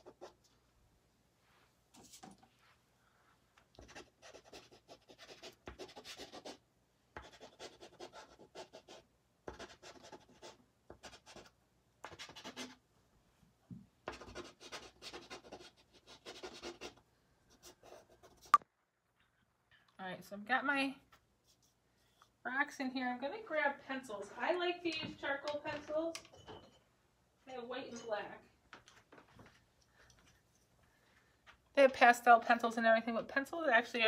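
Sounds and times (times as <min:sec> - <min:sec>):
pastel scratching on paper: 0:03.8 - 0:06.6, 0:07.2 - 0:11.5, 0:12.1 - 0:12.8, 0:14.1 - 0:17.0.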